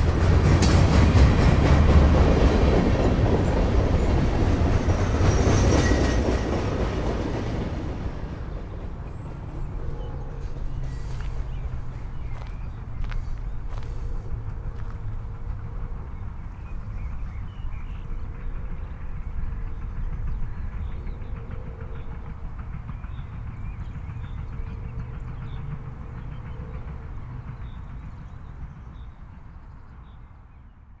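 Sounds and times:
birds chirping: 2.4s - 31.0s.

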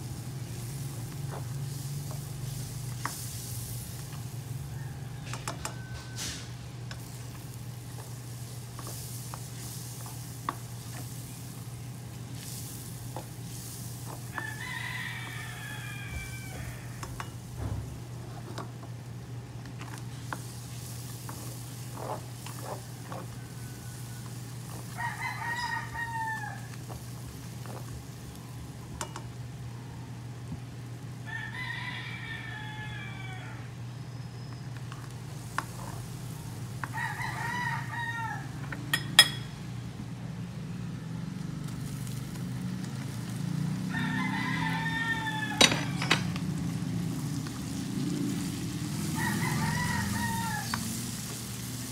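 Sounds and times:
rooster crowing: 4.2s - 7.1s, 14.1s - 17.9s, 21.3s - 27.0s, 31.2s - 34.0s, 36.8s - 39.5s, 43.1s - 51.8s.

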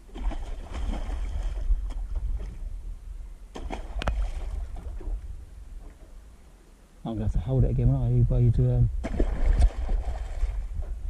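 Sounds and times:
wind rumble on microphone: 0.0s - 6.2s, 7.1s - 11.0s
fish splashing in water: 0.1s - 2.5s, 3.5s - 5.2s, 9.0s - 10.6s.

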